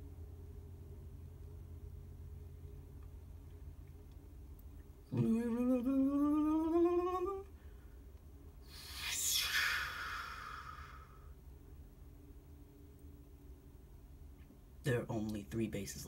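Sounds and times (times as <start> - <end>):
person humming rising note: 5.1 - 7.5, 8.7 - 11.3
whooshing hiss sweeping down: 8.6 - 11.3.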